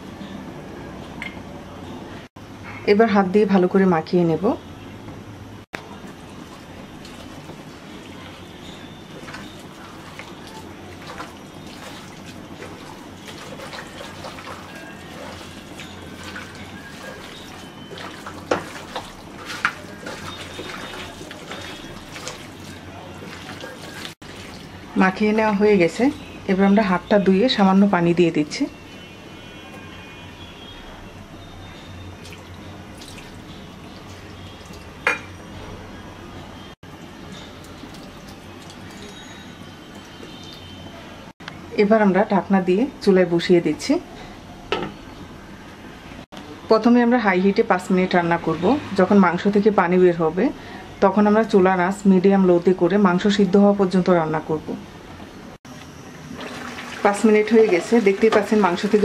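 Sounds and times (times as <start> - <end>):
wet squelching of kneaded meat: 6.0 - 24.8
clinks against pot: 35.0 - 35.4.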